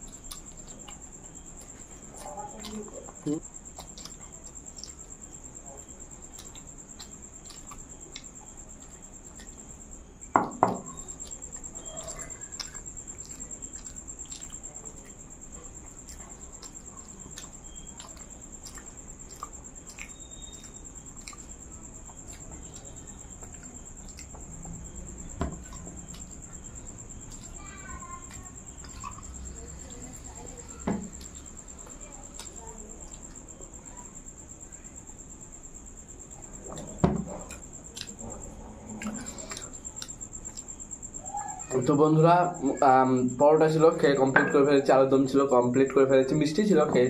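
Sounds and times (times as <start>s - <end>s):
person chewing and lip smacking: 0.0s - 10.0s, 10.8s - 33.6s, 36.3s - 41.1s
dishes knocking on table: 10.4s - 10.9s, 37.0s - 37.4s, 44.3s - 44.7s.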